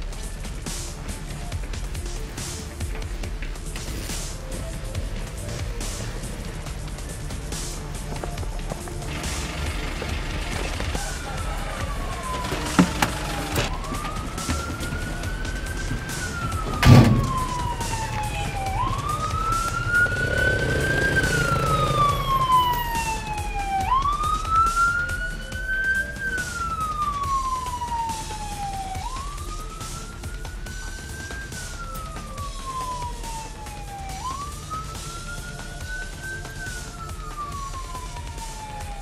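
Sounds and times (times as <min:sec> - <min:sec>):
vehicle siren wailing: 0:00.0 - 0:39.0
sharp thump: 0:16.4 - 0:17.7.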